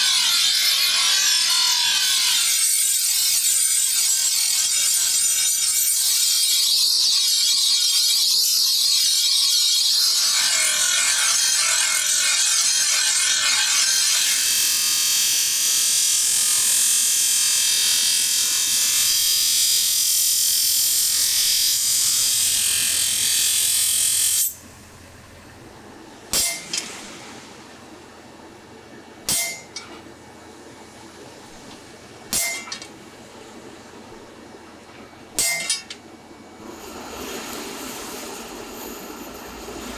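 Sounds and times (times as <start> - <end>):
bench grinder grinding steel: 0.0 - 19.4
hammer striking metal punch: 26.3 - 27.1, 29.3 - 30.0, 32.3 - 32.9, 35.4 - 36.0.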